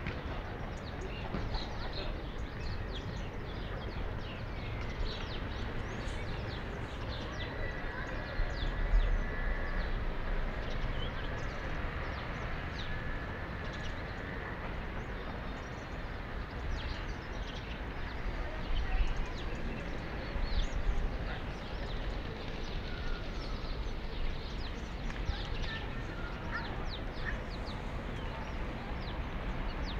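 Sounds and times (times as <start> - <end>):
small birds chirping: 10.6 - 29.9.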